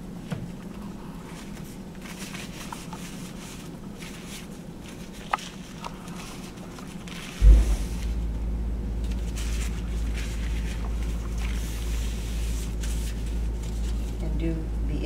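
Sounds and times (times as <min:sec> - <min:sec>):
thump: 0:07.4 - 0:08.3
low rumble: 0:07.4 - 0:14.1
paper towel rubbing on steel sink: 0:09.3 - 0:14.3.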